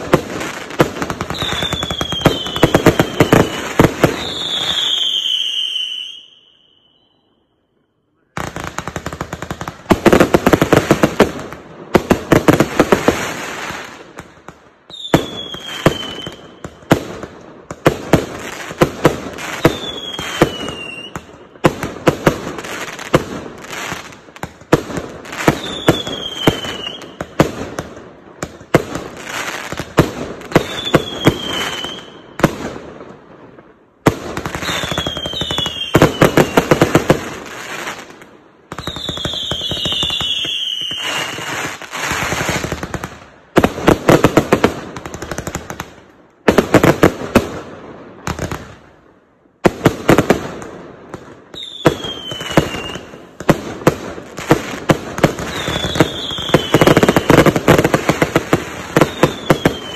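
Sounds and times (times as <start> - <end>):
fireworks bursting and crackling: 0.0 - 7.1, 8.2 - 59.9
falling firework whistle: 1.3 - 7.6, 14.9 - 16.8, 19.4 - 21.2, 25.4 - 27.3, 30.5 - 32.4, 34.6 - 36.7, 38.7 - 42.2, 51.5 - 53.2, 55.4 - 57.7, 58.8 - 59.9.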